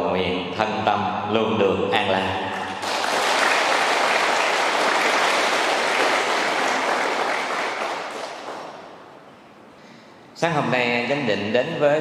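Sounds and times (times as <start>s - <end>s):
audience applauding: 2.7s - 9.0s.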